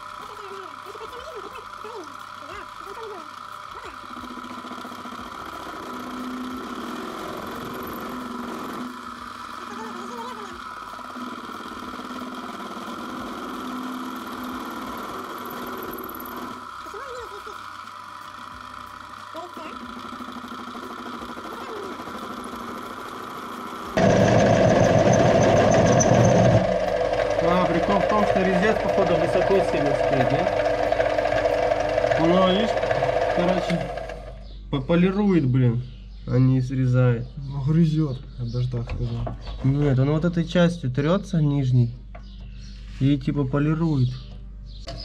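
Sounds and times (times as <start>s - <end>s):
metal lathe whining: 0.0s - 17.0s, 17.6s - 34.4s
tool cutting metal: 0.0s - 34.3s.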